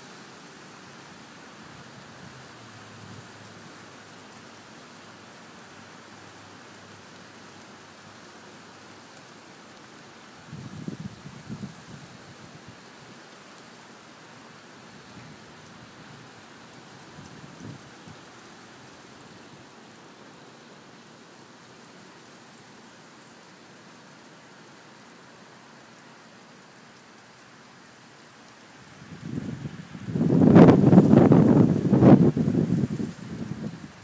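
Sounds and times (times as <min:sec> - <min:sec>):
steady rain falling: 0:00.0 - 0:34.0.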